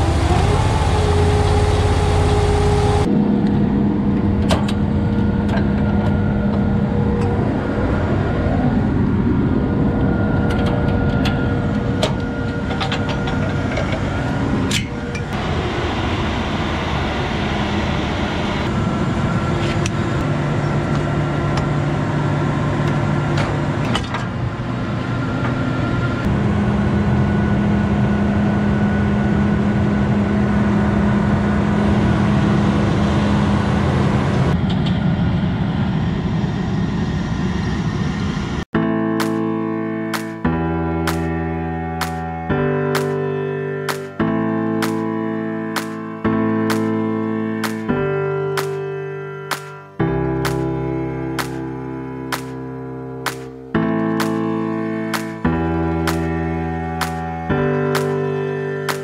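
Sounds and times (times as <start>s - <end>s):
diesel engine running: 0.0s - 39.3s
sharp metallic clicks: 39.2s - 39.4s, 40.1s - 40.4s, 41.1s - 41.3s, 42.0s - 42.3s, 43.0s - 43.2s, 43.9s - 44.2s, 44.8s - 45.0s, 45.8s - 46.0s, 46.7s - 47.0s, 47.6s - 47.9s, 48.6s - 48.8s, 49.5s - 50.7s, 51.4s - 51.6s, 52.3s - 52.6s, 53.2s - 54.5s, 55.1s - 56.4s, 57.0s - 57.3s, 58.0s - 58.2s.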